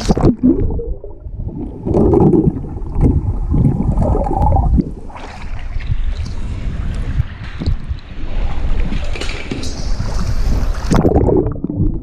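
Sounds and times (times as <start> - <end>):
underwater gurgling and sloshing: 0.0 - 12.0.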